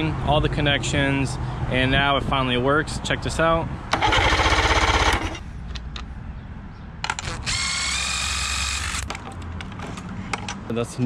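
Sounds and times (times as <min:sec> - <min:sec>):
electric starter cranking engine: 0:03.9 - 0:05.4, 0:07.1 - 0:09.1
power tool whine: 0:07.2 - 0:09.1.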